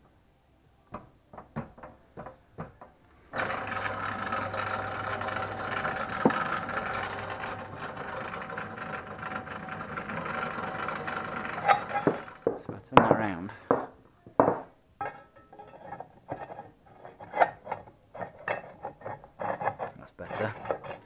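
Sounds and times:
pillar drill drilling into steel: 3.3 - 12.5.

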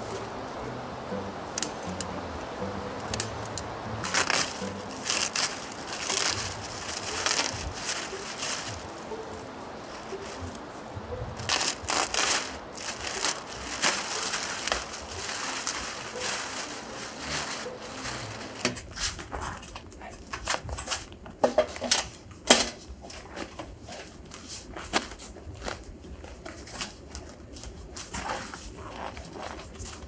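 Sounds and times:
sharp crackles and knocks: 3.0 - 19.8
plastic tarpaulin rustling: 4.0 - 19.7.

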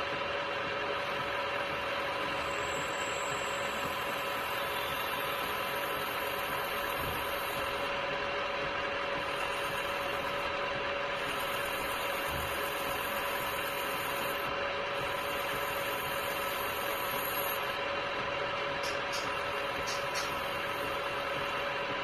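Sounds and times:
router whine: 0.0 - 22.0
hiss of cutting plastic: 18.8 - 21.1.

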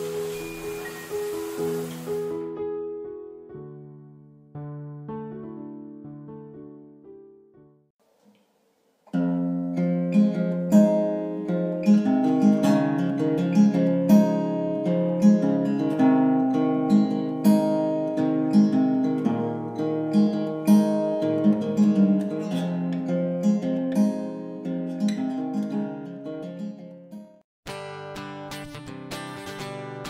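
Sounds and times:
acoustic guitar music: 0.0 - 2.6, 9.0 - 30.0.

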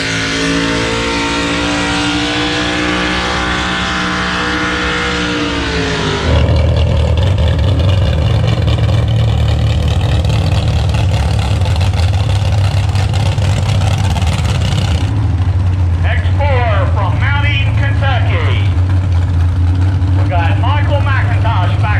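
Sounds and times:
truck engine at high revs: 0.0 - 21.9
engine idling deep rumble: 4.9 - 21.9.

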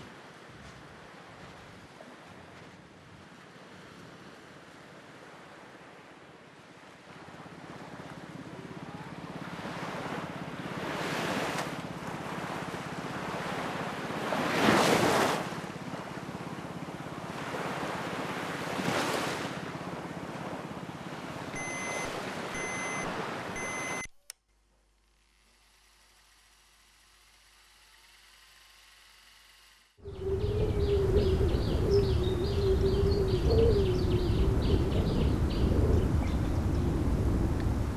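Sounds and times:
sea waves washing onto beach: 0.0 - 23.9
short high electronic beeps: 21.6 - 24.1.

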